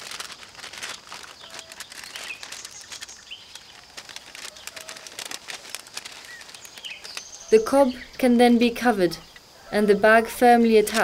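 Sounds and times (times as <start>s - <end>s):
paper bag rustling: 0.0s - 7.8s
light crackling rustle: 0.0s - 9.6s
birds chirping: 1.0s - 11.0s.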